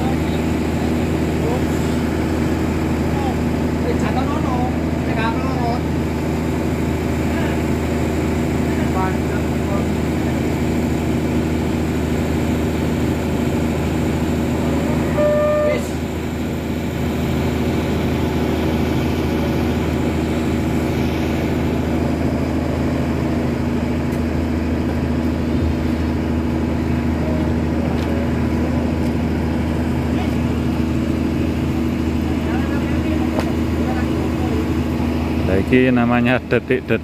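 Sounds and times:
engine droning steadily: 0.0s - 37.0s
short horn toot: 15.1s - 16.0s.

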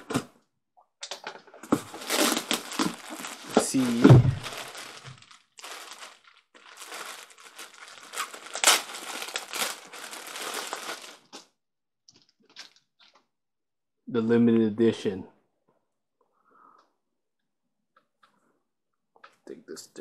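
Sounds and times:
packaging crinkled and torn open: 1.0s - 11.5s.

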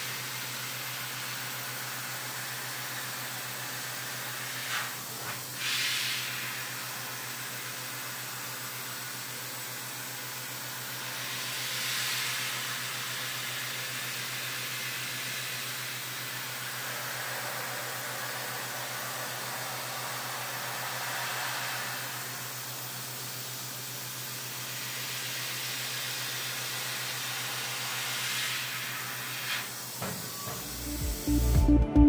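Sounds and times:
coolant spray and cutting hiss: 0.0s - 31.0s.

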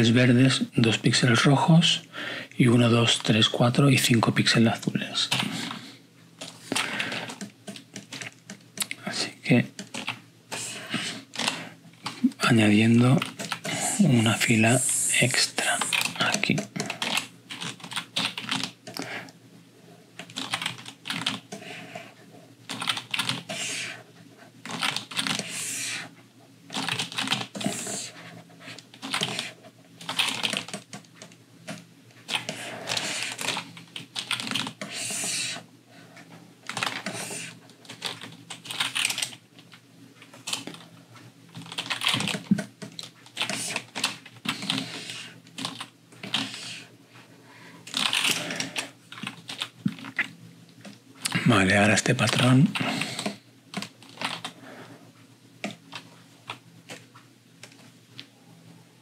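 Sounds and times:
computer keyboard keys clicking: 6.4s - 9.0s, 9.8s - 10.2s, 15.7s - 19.1s, 20.2s - 21.5s, 22.7s - 23.5s, 24.6s - 25.5s, 26.7s - 27.7s, 28.9s - 34.9s, 36.7s - 37.2s, 37.8s - 39.4s, 41.6s - 44.8s, 45.6s - 46.5s, 47.9s - 50.2s, 53.2s - 54.6s.

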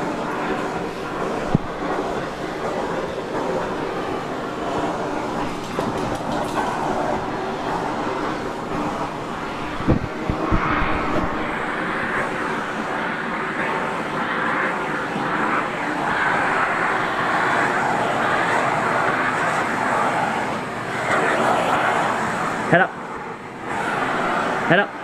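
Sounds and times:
vacuum cleaner running: 0.0s - 25.0s.

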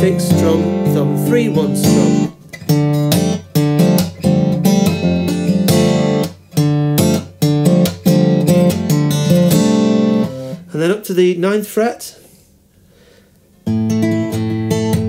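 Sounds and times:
acoustic guitar fingerpicking: 0.0s - 10.7s, 13.6s - 15.0s
sharp guitar strums: 0.0s - 10.7s.

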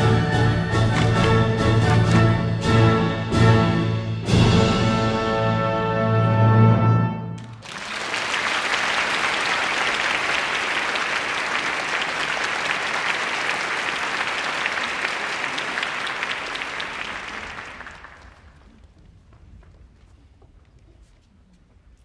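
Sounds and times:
audience applause: 0.0s - 2.4s, 7.4s - 18.9s
orchestral chord: 0.0s - 7.3s.

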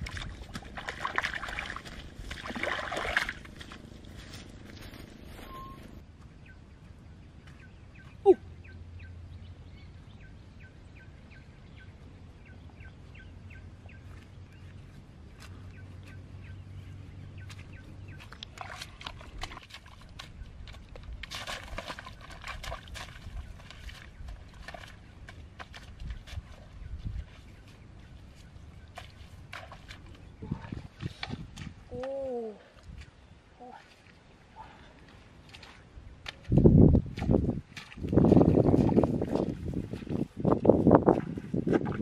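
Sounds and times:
rustling in grass: 1.0s - 6.0s
faint high chirps: 5.4s - 6.0s.

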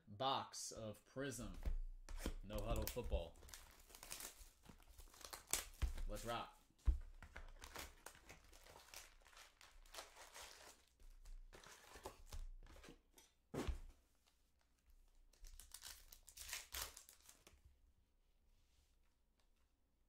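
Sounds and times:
packaging crinkling and tearing: 2.6s - 6.3s, 7.2s - 12.5s, 15.4s - 17.5s.

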